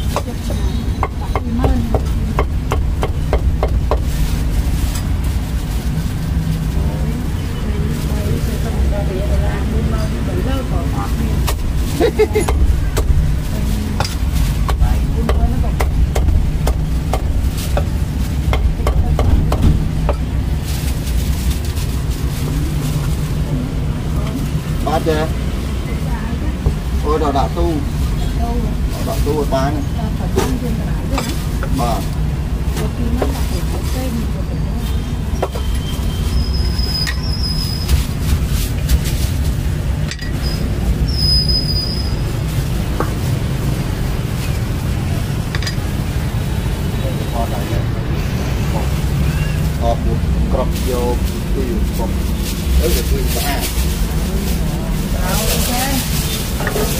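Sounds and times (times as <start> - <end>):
low rumble of street traffic: 0.0 - 56.9
high-pitched squeals: 40.3 - 42.4
low rumble: 42.0 - 56.6.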